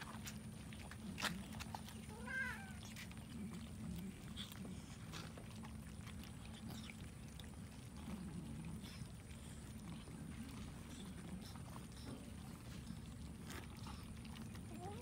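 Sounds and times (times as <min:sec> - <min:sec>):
cat meowing: 0:02.1 - 0:02.8.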